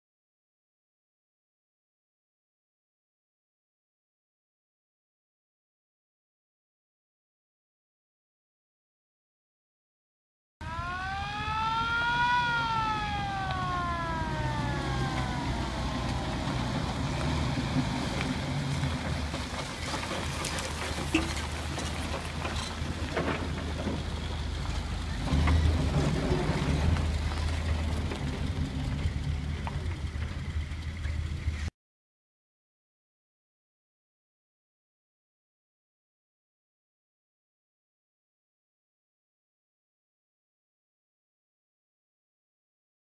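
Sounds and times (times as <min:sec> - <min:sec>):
vehicle engine rumbling: 0:10.6 - 0:31.7.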